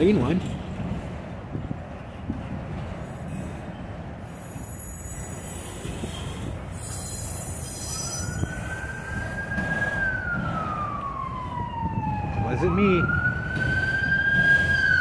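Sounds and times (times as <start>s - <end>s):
train wheels rumbling on rail: 0.0s - 12.4s, 13.0s - 15.0s
siren wailing: 7.5s - 15.0s.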